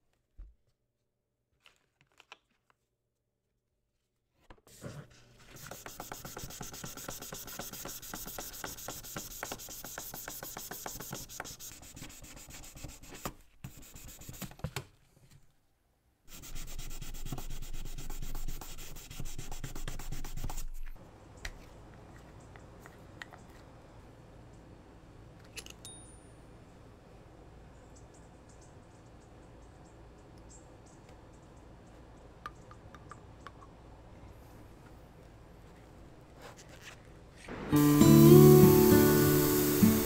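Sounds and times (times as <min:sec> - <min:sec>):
hand sanding metal: 0:05.5 - 0:14.4, 0:16.3 - 0:20.8.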